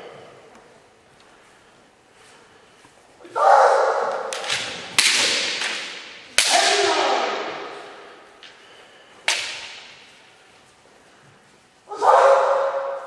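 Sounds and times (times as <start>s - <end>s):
bamboo sword strikes cracking: 4.1s - 7.2s, 9.3s - 9.9s.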